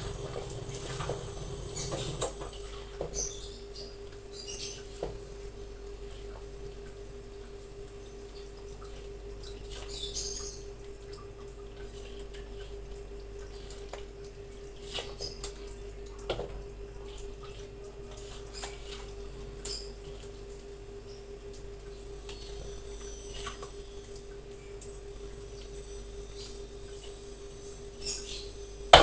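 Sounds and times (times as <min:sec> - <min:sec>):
steady hum: 0:00.0 - 0:03.0
wet squelches of stirring: 0:00.0 - 0:28.8.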